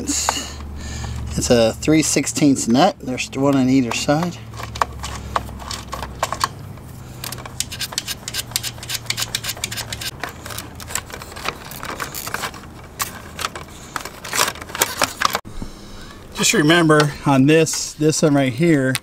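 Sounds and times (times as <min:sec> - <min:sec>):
hand ratchet clicking: 0:07.2 - 0:10.2.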